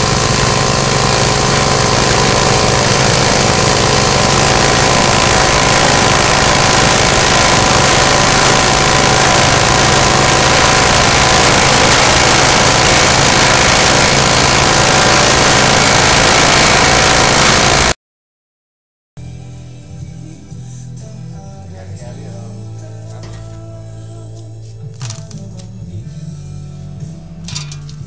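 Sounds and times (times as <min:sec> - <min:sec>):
grass chopper machine running: 0:00.0 - 0:18.0.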